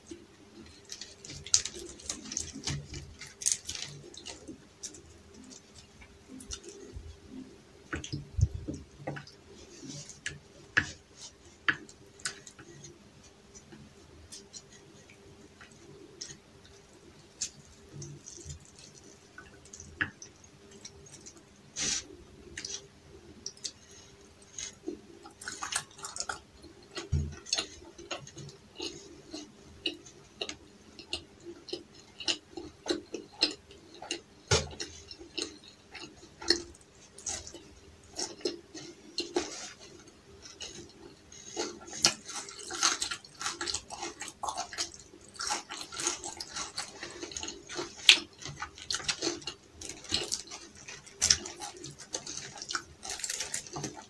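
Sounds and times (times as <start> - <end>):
faint steady hum: 0.0 - 54.0
wet chewing and mouth clicks: 0.1 - 54.0.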